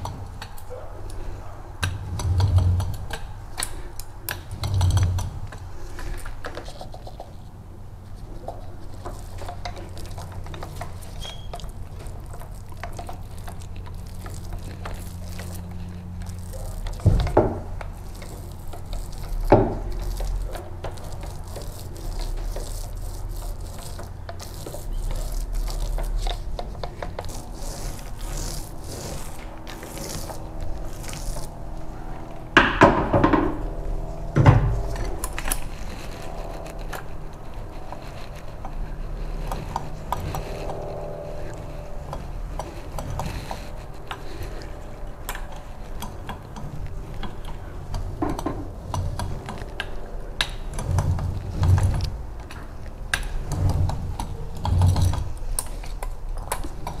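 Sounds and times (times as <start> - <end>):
low hum: 0.0 - 57.0
roller on wet primer: 0.0 - 57.0.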